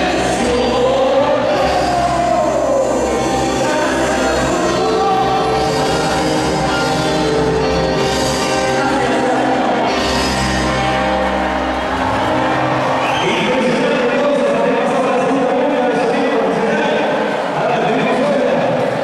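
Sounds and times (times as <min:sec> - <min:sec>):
person singing: 0:00.0 - 0:11.4
live rock band playing: 0:00.0 - 0:13.2.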